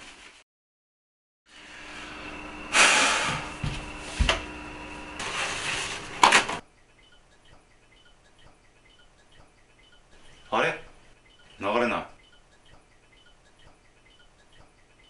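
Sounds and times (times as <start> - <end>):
toilet paper rustling off roll: 5.2 - 6.6.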